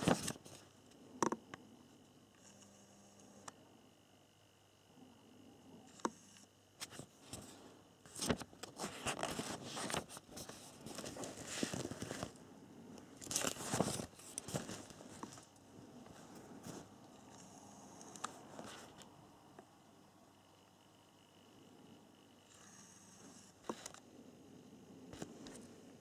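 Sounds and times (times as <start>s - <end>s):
paper pages rustling: 0.0s - 0.6s, 8.1s - 12.4s, 13.2s - 15.5s.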